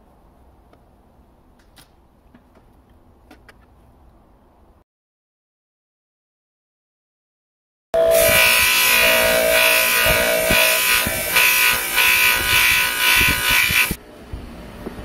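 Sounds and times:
bench motor whine: 8.0s - 14.0s
knife blade on grinding wheel: 8.0s - 14.0s.

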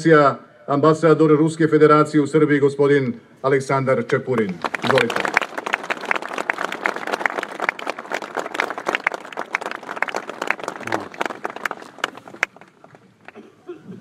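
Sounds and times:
audience applauding: 4.2s - 13.4s.

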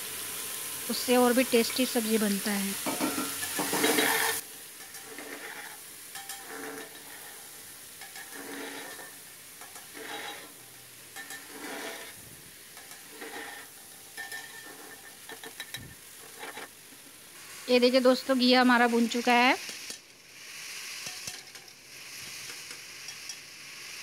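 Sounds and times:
vegetables sizzling in oil: 0.0s - 24.0s
spatula scraping a pot: 2.9s - 10.6s, 11.2s - 12.2s, 12.8s - 16.8s, 19.6s - 24.0s.

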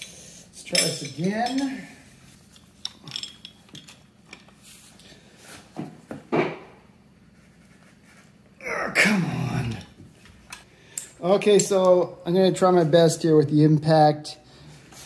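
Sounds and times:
wrenches clinking on metal: 0.6s - 1.9s, 2.5s - 4.5s.

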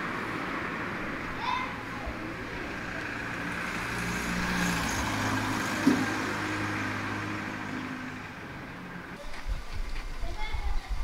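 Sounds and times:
vehicle engine driving past: 2.2s - 8.9s.

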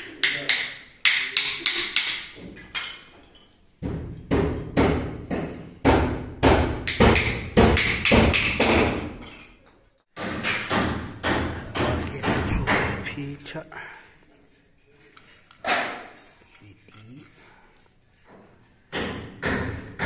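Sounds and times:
hammer striking nails: 0.2s - 2.5s, 3.8s - 9.2s, 10.2s - 13.1s, 18.9s - 20.0s.

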